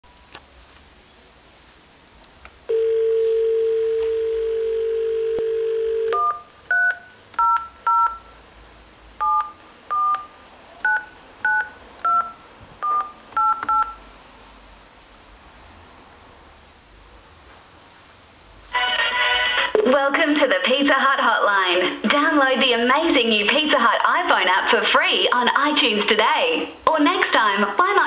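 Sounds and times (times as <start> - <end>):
phone dial tone: 2.7 - 8.2, 9.2 - 11.1, 12.0 - 14.0
touch-tone beeps: 5.9 - 8.3, 9.2 - 14.0.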